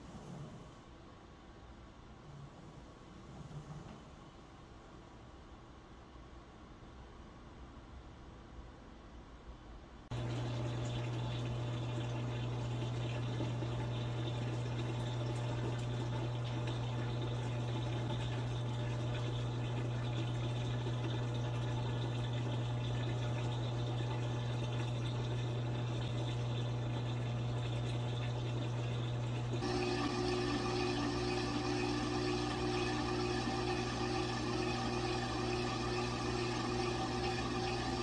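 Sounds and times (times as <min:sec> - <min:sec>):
steady low hum: 0:00.0 - 0:38.0
washing machine filling with water: 0:10.1 - 0:38.0
washing machine motor whine: 0:10.1 - 0:38.0.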